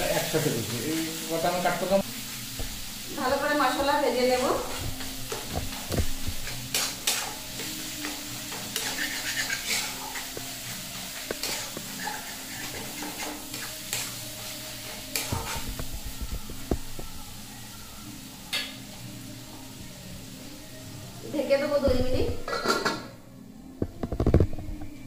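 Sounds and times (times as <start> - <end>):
food sizzling in pan: 0.0 - 25.0
metal spatula scraping pan: 4.3 - 15.9, 22.5 - 23.1.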